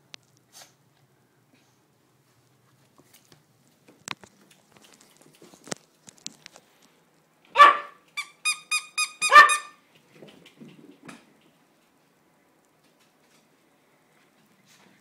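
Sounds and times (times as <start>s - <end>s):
small dog barking: 7.5s - 8.0s, 9.2s - 9.8s.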